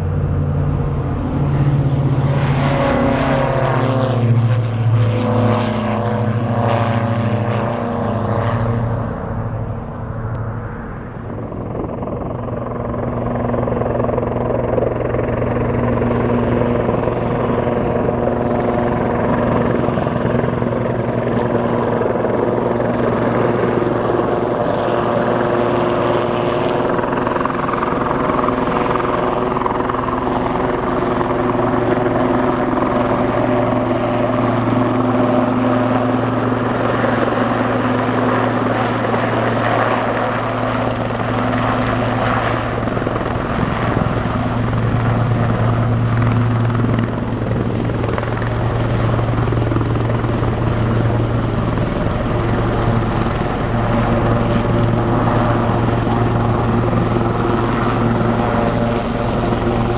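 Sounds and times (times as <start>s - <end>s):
helicopter engines and rotors: 0.0s - 59.9s.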